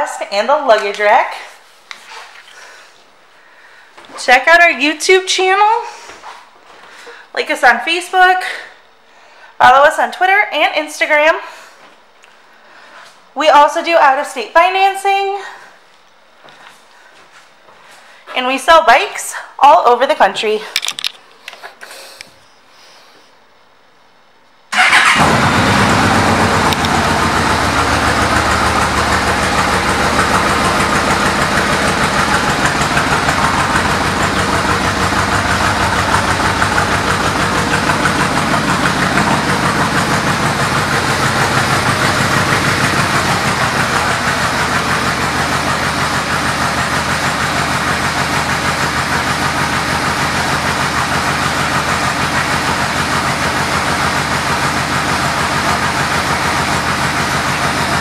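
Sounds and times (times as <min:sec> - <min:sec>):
motorcycle engine starting and idling: 0:24.7 - 0:58.0.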